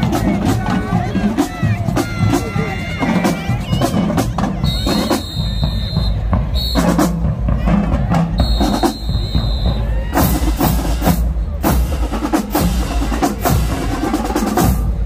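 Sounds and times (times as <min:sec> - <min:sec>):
marching drumline: 0:00.0 - 0:15.0
shrill whistle: 0:04.6 - 0:07.0, 0:08.4 - 0:09.9.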